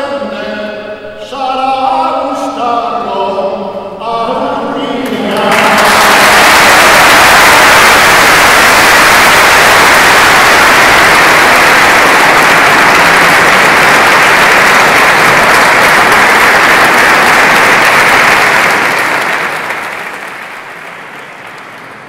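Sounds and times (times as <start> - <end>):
audience applause: 5.0 - 22.0.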